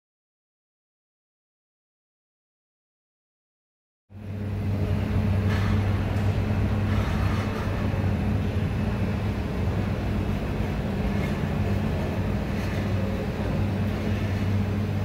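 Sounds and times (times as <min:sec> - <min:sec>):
train coaches rumbling past: 0:04.2 - 0:15.0.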